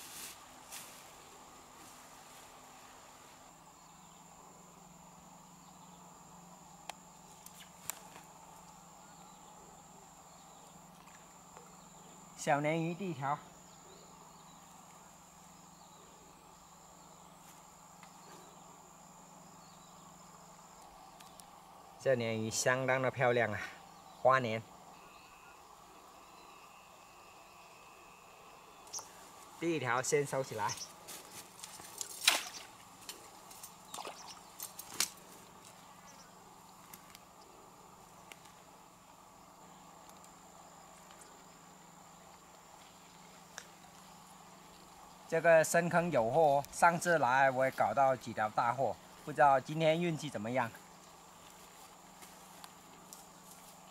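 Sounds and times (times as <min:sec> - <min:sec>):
low steady hum: 0:00.0 - 0:53.9
high-pitched insect tone: 0:03.3 - 0:53.9
faint ticks: 0:40.0 - 0:41.6.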